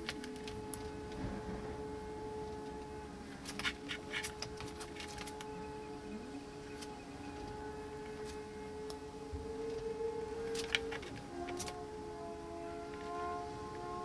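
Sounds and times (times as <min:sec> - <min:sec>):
clicks and rattles of wires: 0:00.0 - 0:05.5, 0:06.8 - 0:12.0
quiet steady tone: 0:00.0 - 0:14.0.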